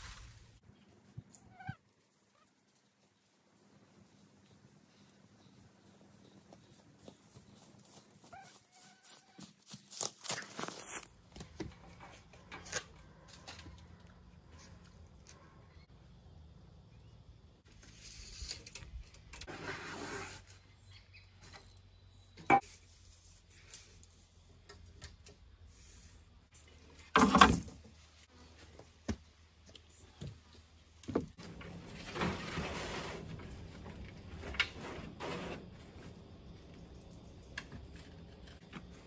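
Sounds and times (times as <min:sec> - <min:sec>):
materials scraping and rustling: 0:31.3 - 0:36.6.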